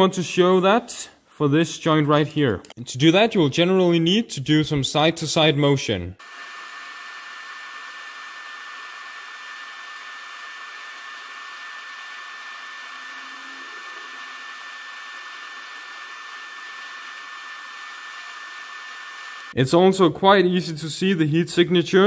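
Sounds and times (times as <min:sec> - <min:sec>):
welding arc hissing: 0:06.2 - 0:19.6
faint high whine: 0:12.0 - 0:16.4.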